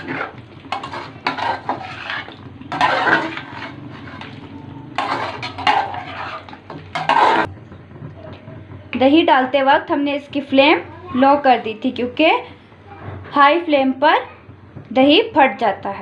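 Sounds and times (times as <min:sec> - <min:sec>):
metal spoon scraping metal pot: 0:00.0 - 0:07.5.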